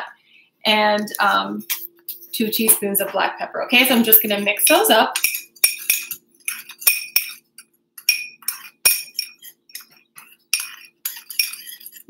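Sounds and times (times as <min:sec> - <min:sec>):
metal spoon clinking in bowl: 0:04.3 - 0:12.0.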